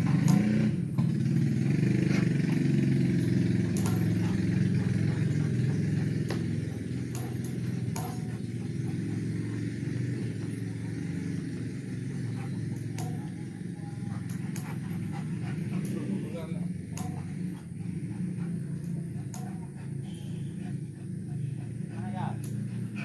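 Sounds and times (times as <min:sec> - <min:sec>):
sharp clicks: 0:00.0 - 0:01.2
motor engine humming: 0:00.0 - 0:23.0.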